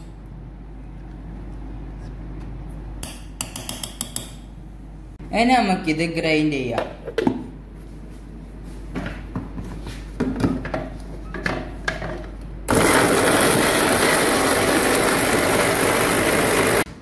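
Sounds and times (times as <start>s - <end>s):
mixer grinder motor whirring: 12.7s - 16.9s.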